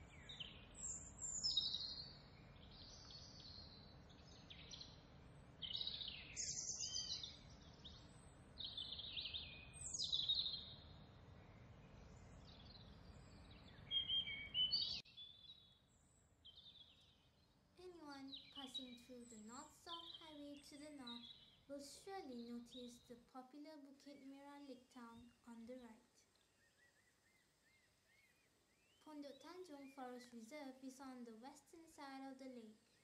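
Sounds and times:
background hiss: 0.0 - 33.0
birds singing: 0.0 - 33.0.

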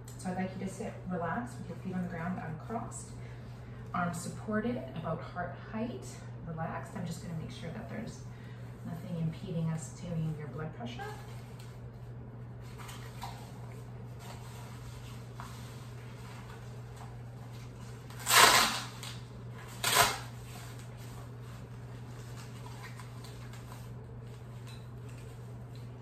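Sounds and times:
steady low hum: 0.0 - 26.0
hook-and-loop strap ripping: 18.1 - 20.3.

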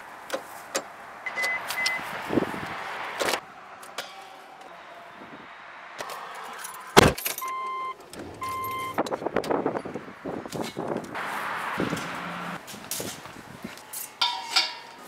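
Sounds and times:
short electronic beeps: 1.3 - 2.0, 7.4 - 9.0
two-tone car warning chime: 1.3 - 2.1, 7.4 - 9.0.

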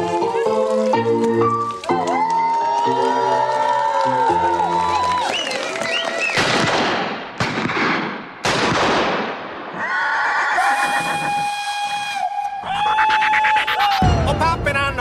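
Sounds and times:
gunshots: 6.3 - 9.7.

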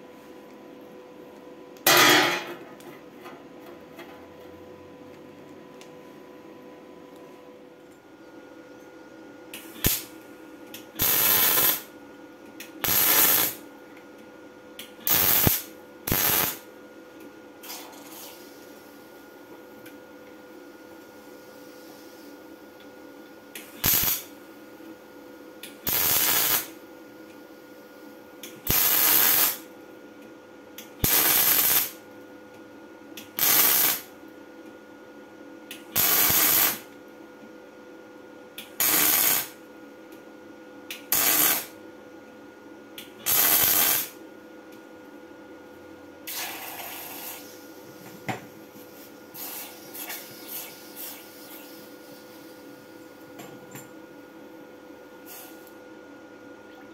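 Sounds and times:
crackling welding arc bursts: 9.6 - 10.2, 10.8 - 11.9, 12.8 - 13.7, 15.0 - 16.7, 23.6 - 24.3, 25.8 - 26.8, 28.6 - 29.7, 31.0 - 32.0, 33.2 - 34.2, 35.8 - 36.9, 38.6 - 39.6, 41.0 - 41.8, 43.2 - 44.2, 46.3 - 47.6.

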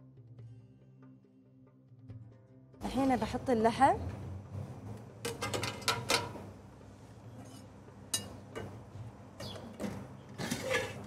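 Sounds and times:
metal skimmer clinking on pot: 5.3 - 6.4, 8.1 - 8.7.

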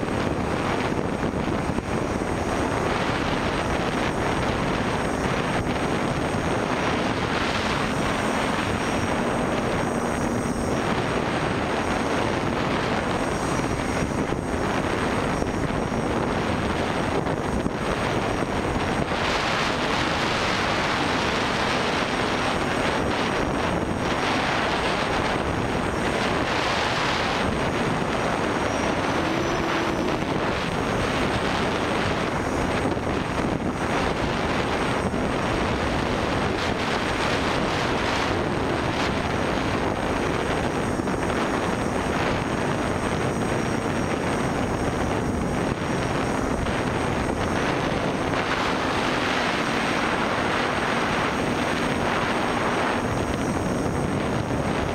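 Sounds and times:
rushing wind noise: 0.0 - 54.9.

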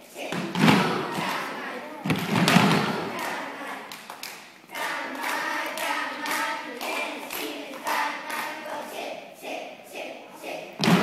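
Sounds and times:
children chanting in unison: 0.0 - 3.9, 4.7 - 11.0
hand claps: 3.2 - 8.6.

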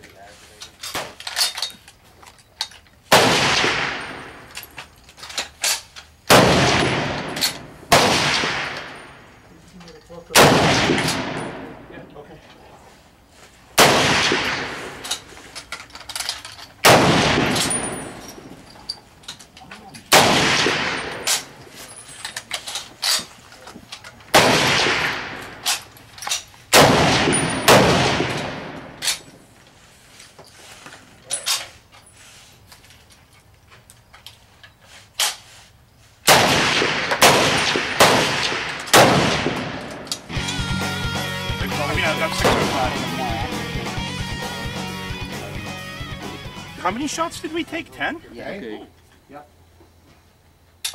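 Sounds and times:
rifle shots echoing: 3.1 - 4.5, 6.3 - 9.2, 10.3 - 11.9, 13.8 - 15.0, 16.8 - 18.5, 20.1 - 21.6, 24.3 - 25.7, 26.7 - 29.0, 36.3 - 40.1, 42.2 - 42.9.

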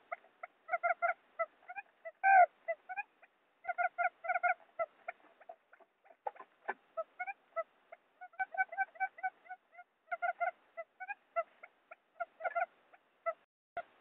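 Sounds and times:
quail calls: 0.0 - 13.9.

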